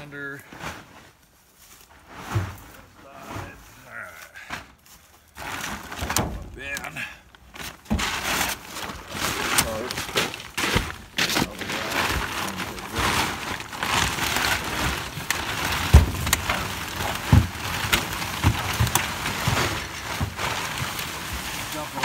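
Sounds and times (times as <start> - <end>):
plastic tarp rustling: 0.0 - 22.0
dull thumps: 7.5 - 21.7.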